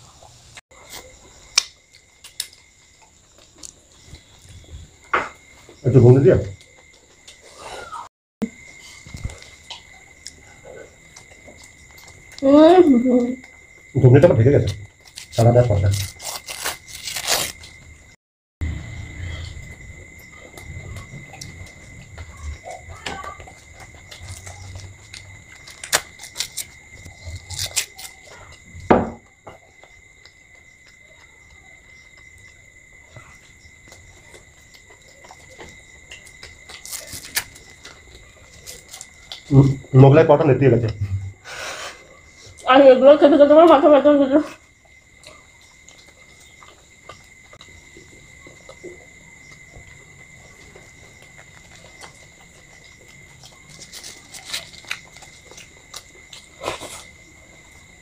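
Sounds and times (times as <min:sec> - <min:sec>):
person chewing: 0:00.7 - 0:04.6, 0:14.7 - 0:18.0, 0:19.4 - 0:28.7, 0:33.8 - 0:39.5, 0:49.5 - 0:57.8
chewing and mouth smacks: 0:08.6 - 0:12.4, 0:33.2 - 0:39.5, 0:44.8 - 0:57.9.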